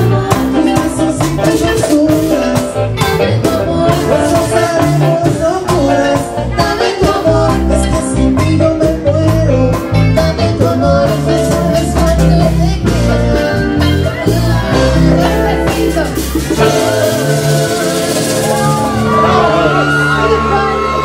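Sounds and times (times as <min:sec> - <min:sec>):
band playing live: 0:00.0 - 0:21.0
guitar: 0:00.0 - 0:21.0
person singing: 0:00.0 - 0:21.0.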